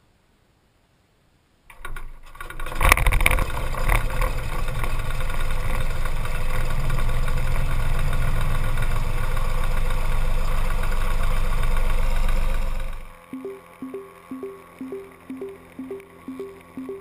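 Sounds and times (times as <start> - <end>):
piston engine starting and idling: 1.7 - 12.4.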